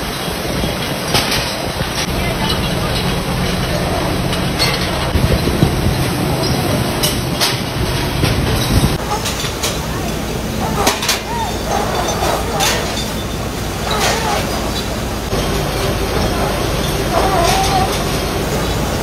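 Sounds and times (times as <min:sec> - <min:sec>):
conveyor running: 0:00.0 - 0:19.0
glass bottles clinking: 0:00.2 - 0:19.0.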